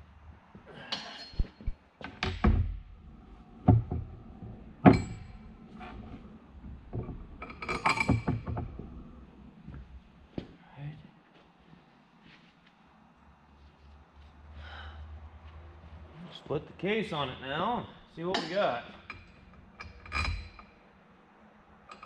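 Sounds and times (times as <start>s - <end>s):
steel parts clinking and knocking: 3.6s - 5.7s, 6.7s - 9.0s, 18.3s - 20.8s.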